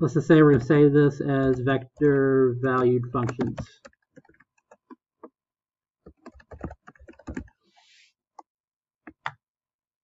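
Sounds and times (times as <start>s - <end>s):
keyboard typing: 0.3s - 5.4s, 6.0s - 7.6s, 8.4s - 9.4s.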